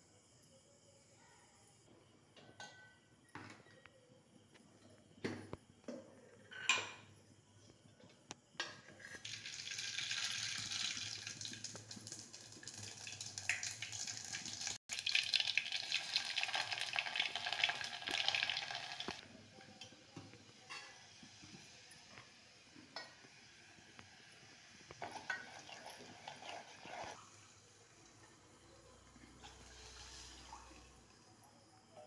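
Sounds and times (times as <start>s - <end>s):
hot oil sizzling and crackling: 9.1s - 31.9s.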